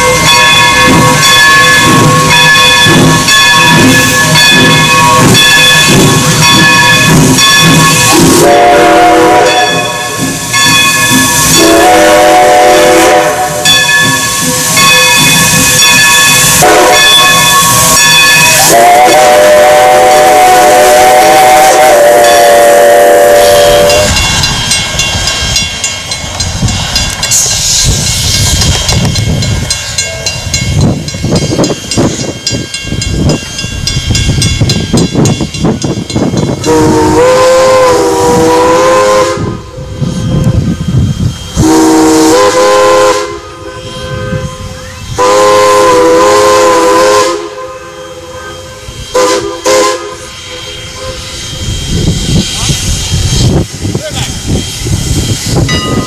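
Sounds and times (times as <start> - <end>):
steam whistle blasts: 0.0 - 24.2, 36.6 - 53.5
steam whistle chord: 0.0 - 24.3, 36.6 - 40.6, 41.3 - 52.3
steam train passing: 0.0 - 56.0.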